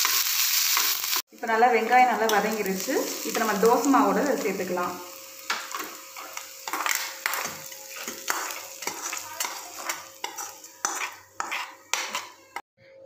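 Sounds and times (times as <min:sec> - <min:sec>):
light sizzling: 0:00.0 - 0:12.6
steel spoon scraping a pan: 0:05.1 - 0:12.6.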